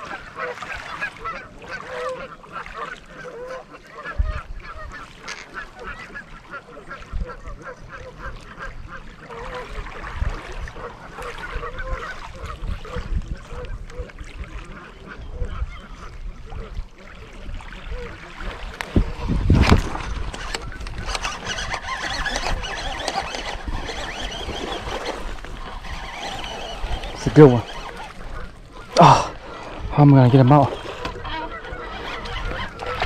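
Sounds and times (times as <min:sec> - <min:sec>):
wind gusting on microphone: 0:11.5 - 0:14.5, 0:15.2 - 0:33.0
geese honking: 0:20.4 - 0:33.0.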